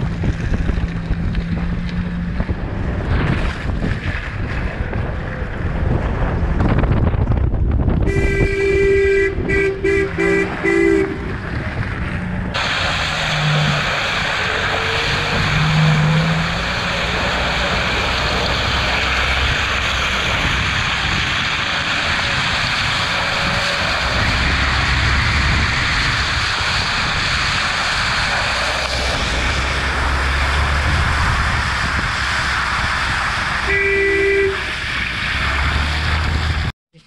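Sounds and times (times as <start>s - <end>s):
tyres splashing through mud: 0.0s - 7.2s, 8.1s - 37.0s
van engine rumble: 0.0s - 37.0s
horn-like tone: 8.1s - 11.3s, 33.6s - 34.7s.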